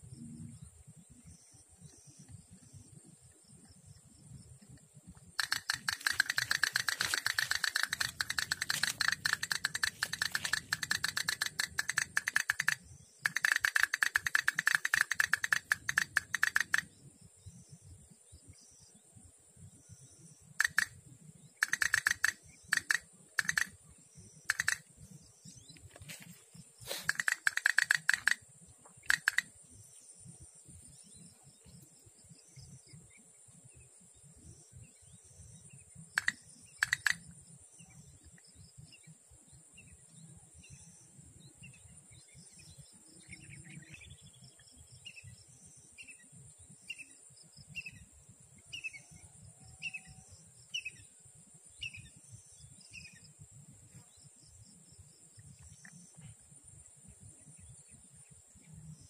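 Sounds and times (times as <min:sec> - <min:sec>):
high insect drone: 0:00.0 - 0:59.0
sharp clicks: 0:04.7 - 0:16.9, 0:20.6 - 0:21.0, 0:21.6 - 0:23.8, 0:24.5 - 0:24.9, 0:26.9 - 0:29.5, 0:36.1 - 0:37.3
bird chirping: 0:05.4 - 0:59.0.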